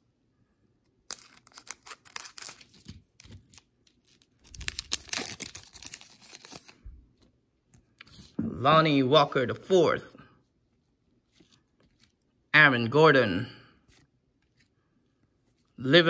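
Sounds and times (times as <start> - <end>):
card pack wrapper crinkling: 1.0 - 6.8.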